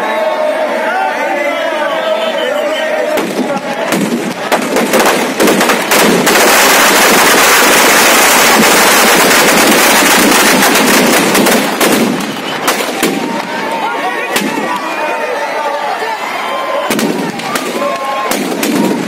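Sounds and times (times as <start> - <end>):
firecrackers crackling: 3.1 - 15.1, 16.8 - 19.0.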